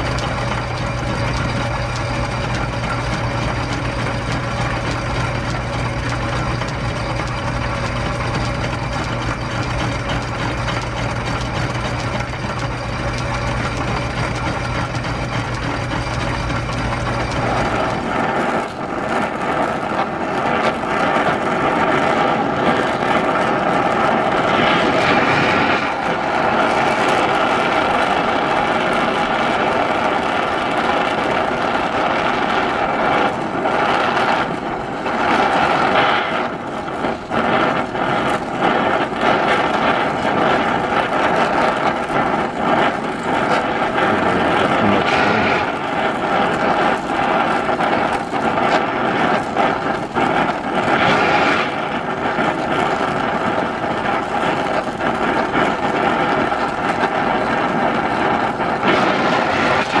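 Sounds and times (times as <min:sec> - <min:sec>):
gas torch hissing: 0:00.0 - 1:00.0
steady tones: 0:43.7 - 0:47.4.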